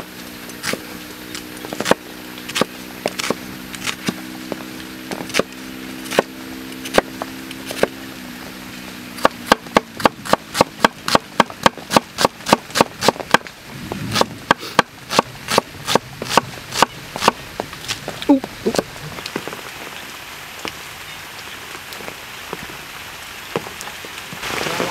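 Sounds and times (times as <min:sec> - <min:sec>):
knife chopping onion on wooden board: 0:09.2 - 0:13.4.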